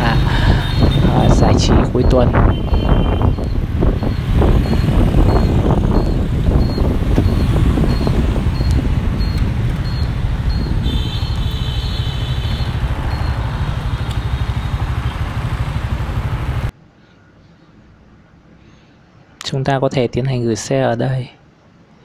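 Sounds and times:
engine and road rumble: 0.0 - 16.8
wind buffeting microphone: 0.2 - 16.7.

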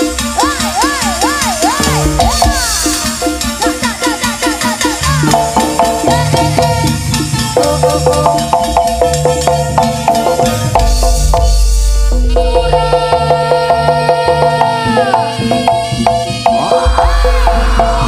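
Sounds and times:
drumming: 0.0 - 18.0
gamelan music: 0.0 - 18.0
deep low boom: 16.8 - 18.0.

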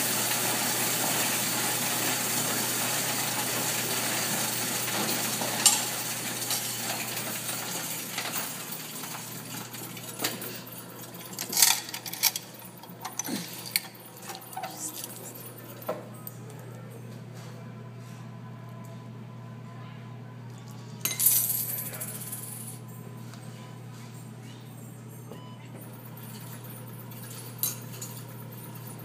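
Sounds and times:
coin counting machine rattle: 0.1 - 15.6, 21.1 - 22.8, 26.0 - 29.0
coin clinks and clicks: 11.2 - 15.5.

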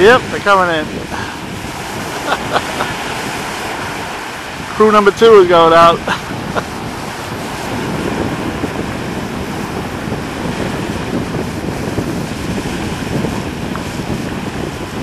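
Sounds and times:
surf washing onto beach: 0.0 - 15.0
wind buffeting microphone: 0.0 - 15.0.

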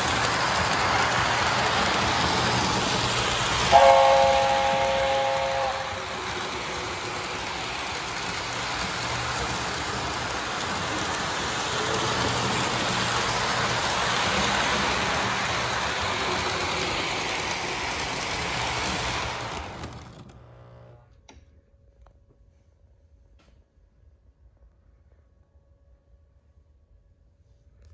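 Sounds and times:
toy train wheels rattling: 0.0 - 20.3
low motor hum: 0.0 - 21.1.

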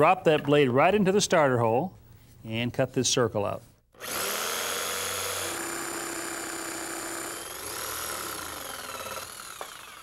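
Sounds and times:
electric jigsaw cutting wood: 4.0 - 10.0.

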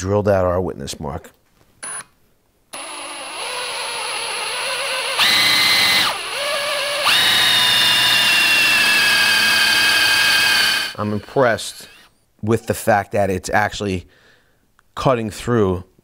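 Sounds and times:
drill whining through steel: 2.8 - 12.2.

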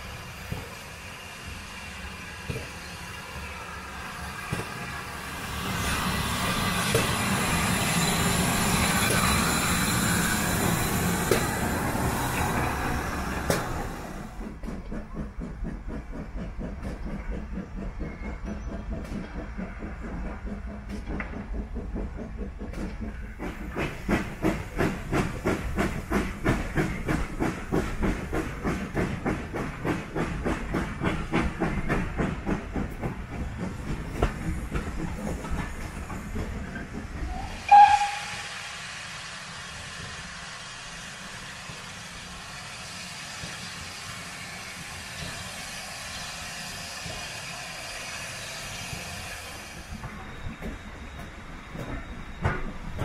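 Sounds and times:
steam train passing rumble: 0.0 - 53.0
wheels clicking on track: 4.5 - 38.3.

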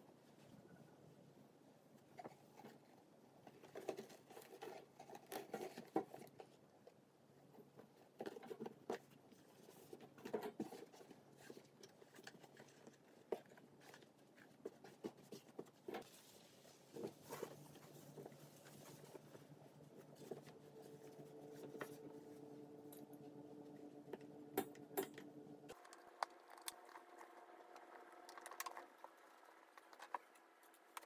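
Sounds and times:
faint rustling of fabric liner: 2.0 - 23.4.

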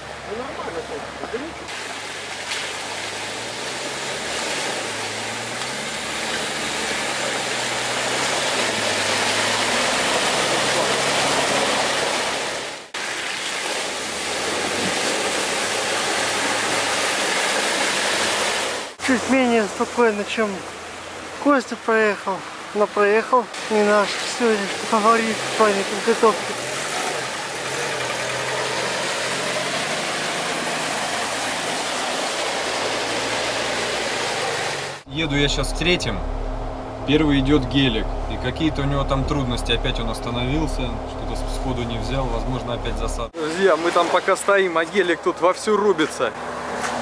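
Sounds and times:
vehicle engine humming: 0.0 - 22.7, 23.5 - 43.4, 44.9 - 47.0
faint engine running: 32.5 - 43.3.

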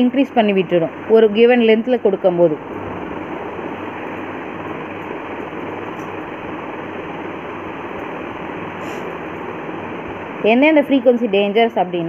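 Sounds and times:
even hiss: 8.6 - 9.3.

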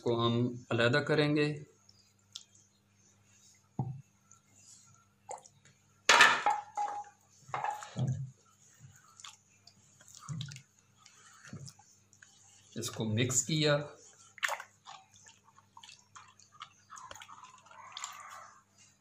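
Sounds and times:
hands squelching wet paste: 8.6 - 19.0.

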